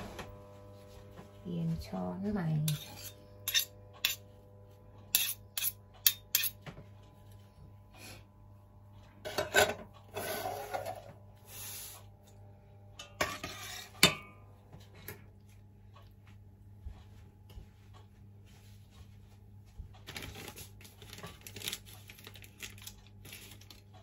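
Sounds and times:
spoons scraping pot: 0:02.5 - 0:04.3, 0:05.1 - 0:06.6, 0:09.3 - 0:11.9, 0:13.2 - 0:14.2
metal spoons clinking on pot: 0:02.6 - 0:04.2, 0:05.1 - 0:06.6.

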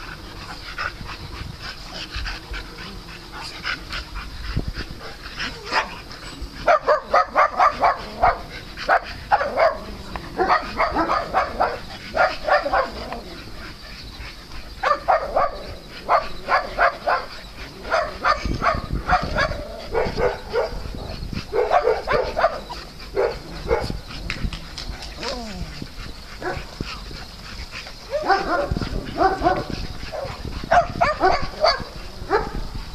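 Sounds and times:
dogs barking: 0:05.0 - 0:24.1, 0:25.2 - 0:27.2, 0:28.0 - 0:32.7.

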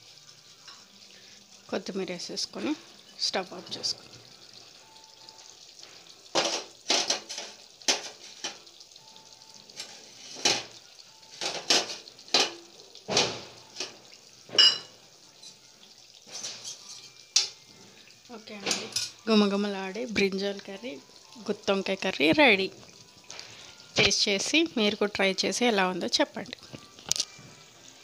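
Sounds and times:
metal utensil scraping a pan: 0:06.3 - 0:08.7, 0:09.7 - 0:12.7, 0:16.2 - 0:17.9.

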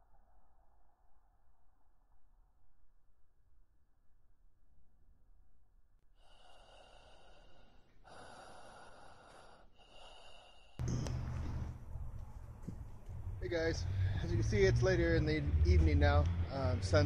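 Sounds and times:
person breathing: 0:06.2 - 0:11.9, 0:13.6 - 0:14.5.

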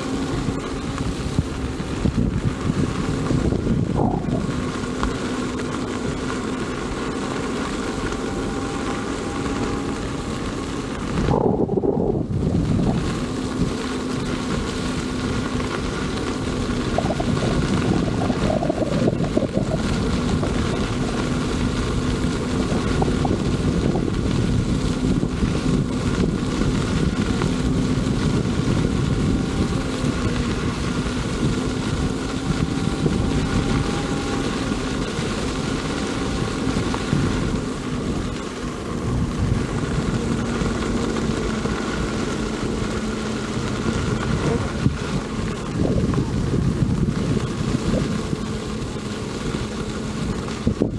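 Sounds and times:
hub motor whine: 0:00.0 - 0:50.9
wind buffeting microphone: 0:00.0 - 0:50.9.

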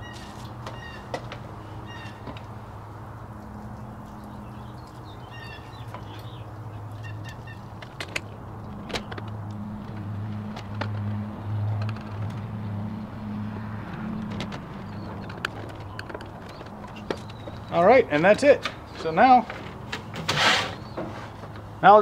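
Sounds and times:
low engine-like hum: 0:00.0 - 0:17.8
bird chirping: 0:01.8 - 0:02.3, 0:03.7 - 0:08.4, 0:14.8 - 0:18.0.

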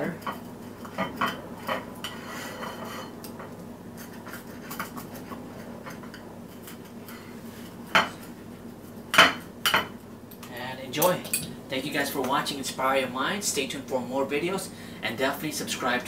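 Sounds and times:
pizza cutter rolling through pancake: 0:00.4 - 0:08.4.

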